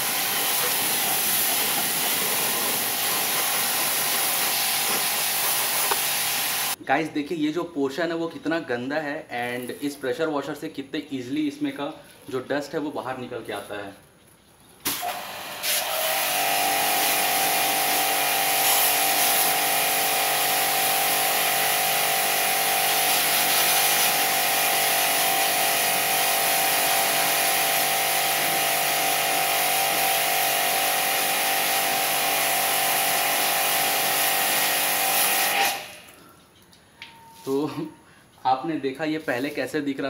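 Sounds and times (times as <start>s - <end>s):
pressure washer motor whine: 0.0s - 6.8s, 15.0s - 36.1s
water jet hissing: 0.0s - 6.8s, 14.8s - 36.2s.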